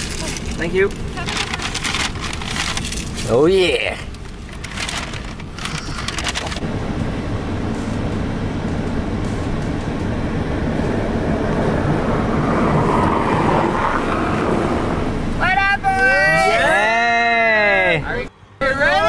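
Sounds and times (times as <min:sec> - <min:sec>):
paper bag rustling: 0:00.0 - 0:03.5, 0:04.2 - 0:06.6
car driving on snowy road: 0:00.0 - 0:19.0.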